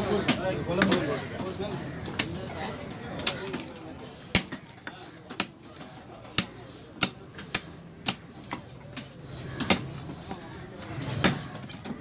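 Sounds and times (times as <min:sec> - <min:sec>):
knife chopping fish on wooden block: 0:06.3 - 0:09.9.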